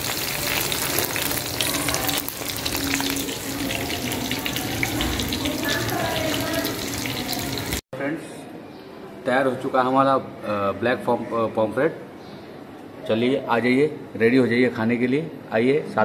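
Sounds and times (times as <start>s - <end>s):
fish frying in hot oil: 0.0s - 7.8s.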